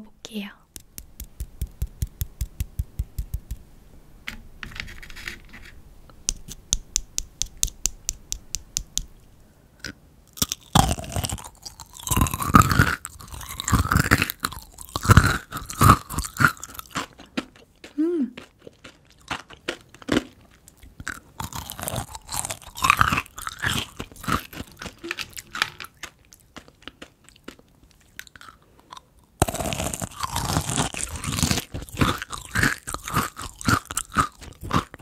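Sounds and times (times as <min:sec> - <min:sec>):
crunchy candy chewing: 0:09.8 - 0:35.0.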